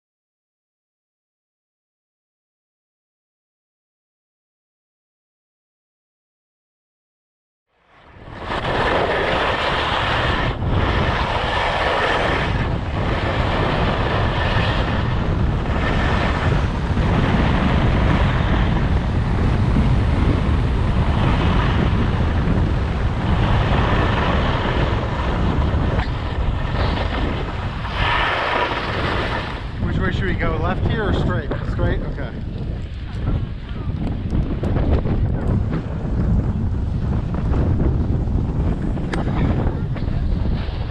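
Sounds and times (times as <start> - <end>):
wind rushing over microphone: 7.9 - 40.9
skis sliding on snow: 8.2 - 30.3.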